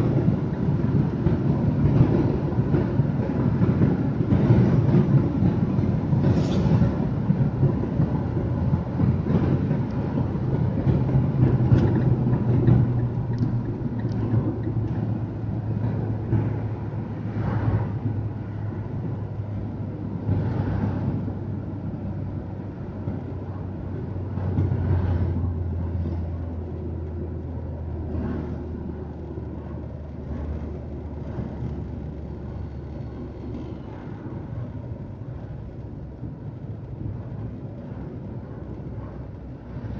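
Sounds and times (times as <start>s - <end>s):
car engine drone: 0.0s - 39.9s.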